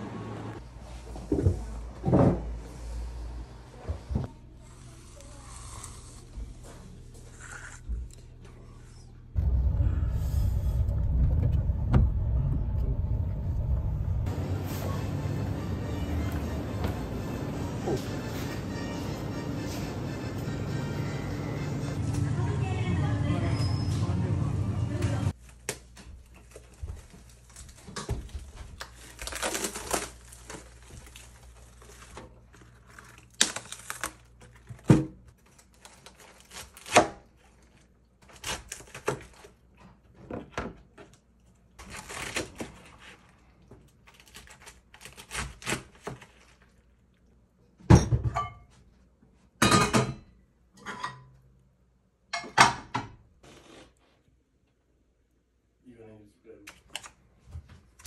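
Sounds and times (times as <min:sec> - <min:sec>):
plastic bag rustling: 0:26.2 - 0:39.6.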